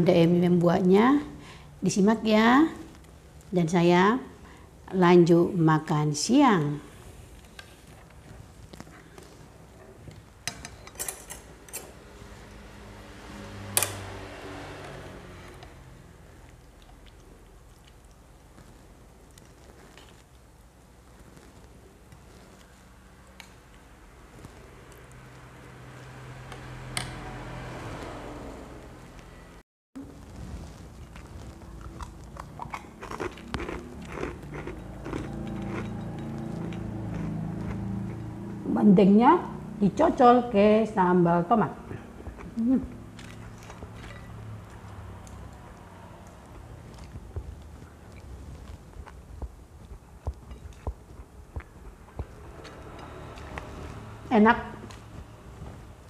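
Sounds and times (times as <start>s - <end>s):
chewing and mouth smacking: 16.4s - 20.4s, 31.0s - 38.3s, 43.2s - 53.9s
steady low hum: 28.1s - 56.0s.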